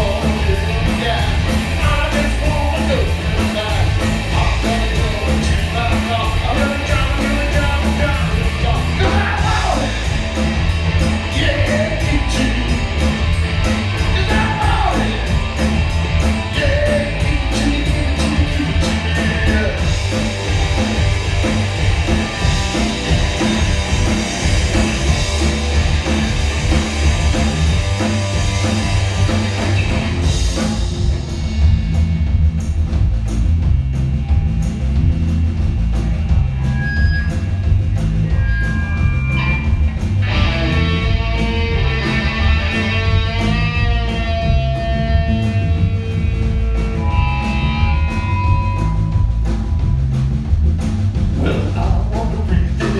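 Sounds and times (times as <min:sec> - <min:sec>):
lead singer singing: 0:00.0 - 0:10.1, 0:11.3 - 0:13.1, 0:14.0 - 0:15.4, 0:16.5 - 0:20.0
rock band playing live: 0:00.0 - 0:52.9.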